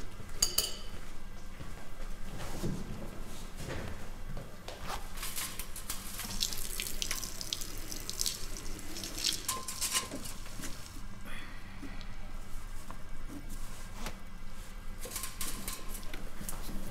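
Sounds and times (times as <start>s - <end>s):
man urinating into a urinal: 5.4s - 11.1s.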